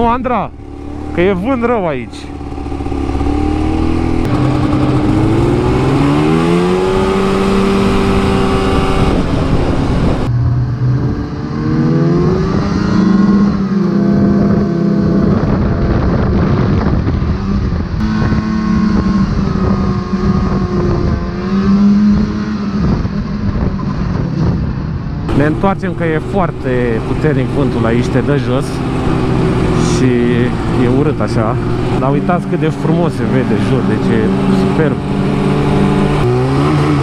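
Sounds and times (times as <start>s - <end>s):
snowmobile engine revving: 0.0s - 16.4s, 17.2s - 23.7s, 25.3s - 37.0s
wind buffeting microphone: 0.0s - 37.0s.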